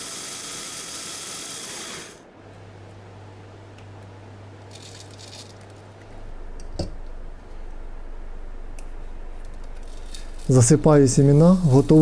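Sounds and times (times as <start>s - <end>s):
low steady hum: 2.2s - 12.0s
seeds rustling in hand: 4.7s - 5.9s, 9.7s - 12.0s.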